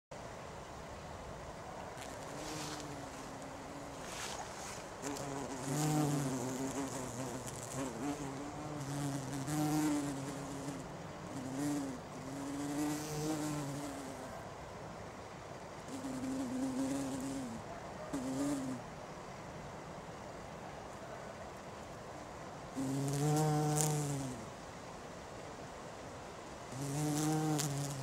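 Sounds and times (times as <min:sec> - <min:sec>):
bumblebee buzzing: 0:02.0 - 0:14.3, 0:15.9 - 0:18.8, 0:22.8 - 0:24.5, 0:26.7 - 0:28.0.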